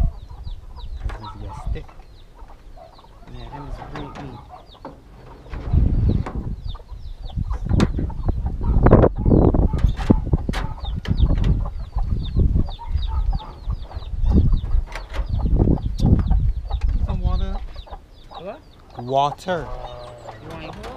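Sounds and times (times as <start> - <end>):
chickens clucking and peeping: 0.0 - 20.9
low rumble: 5.1 - 17.4.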